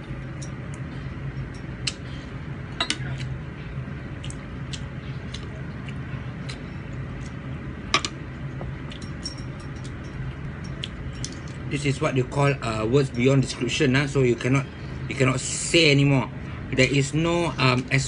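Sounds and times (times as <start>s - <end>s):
low steady hum: 0.0s - 18.0s
spoon and plates clinking: 8.9s - 11.4s.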